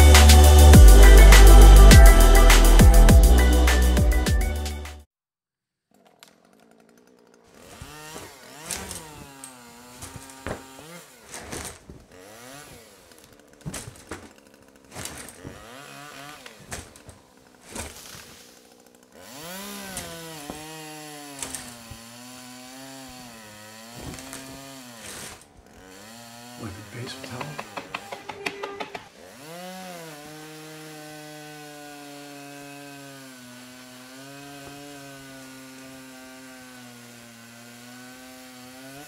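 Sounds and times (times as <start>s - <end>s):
background music: 0.0s - 5.0s
power tool working on wood: 6.2s - 39.0s.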